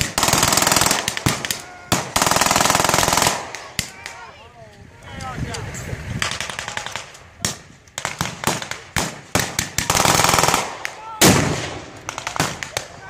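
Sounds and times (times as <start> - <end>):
machine-gun burst: 0.0 - 3.6, 8.0 - 12.8
rifle shots: 0.0 - 4.0, 6.2 - 13.0
loud gun report: 0.0 - 13.0.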